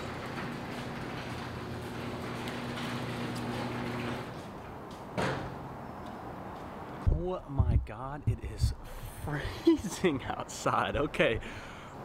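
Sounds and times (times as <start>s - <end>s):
garage door panels rumbling: 0.0s - 4.4s.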